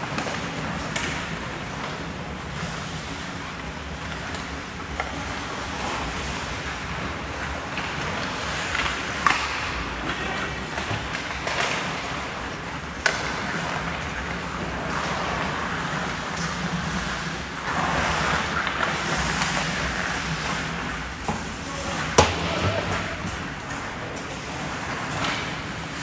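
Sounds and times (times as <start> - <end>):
skate blades scraping ice: 0.0 - 26.0
stick hitting puck: 7.7 - 12.3, 13.0 - 17.0, 17.7 - 25.8.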